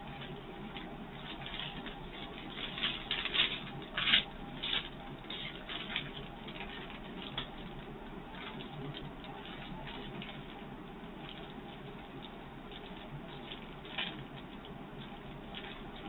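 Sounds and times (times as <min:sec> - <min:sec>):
plastic bags rustling: 0:00.0 - 0:16.0.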